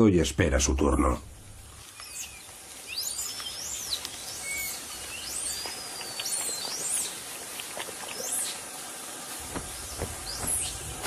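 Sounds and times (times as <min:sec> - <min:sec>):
forest hiss: 0:00.0 - 0:11.0
high whistled bird calls: 0:01.9 - 0:07.2, 0:09.5 - 0:11.0.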